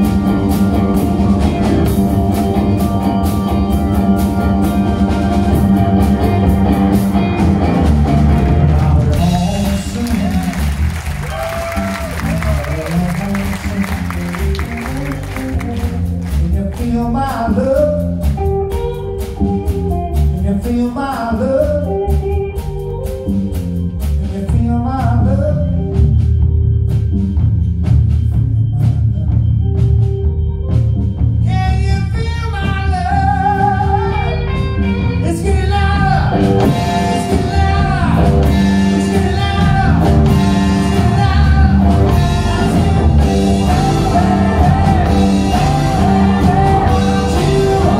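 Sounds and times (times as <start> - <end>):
bass: 0.0 - 47.9
drums: 0.0 - 47.9
electric guitar: 0.0 - 47.9
keyboards: 0.0 - 47.9
wavering lead melody: 25.5 - 47.9.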